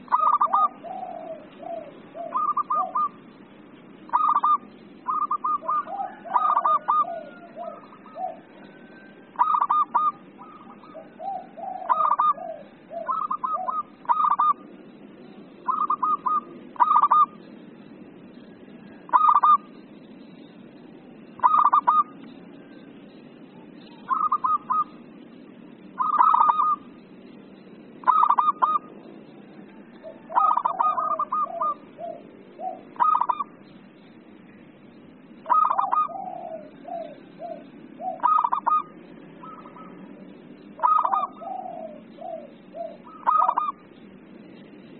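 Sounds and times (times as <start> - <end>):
dove cooing: 0.0 - 17.4, 18.2 - 19.8, 21.3 - 22.8, 23.4 - 27.0, 28.0 - 33.7, 35.4 - 44.4.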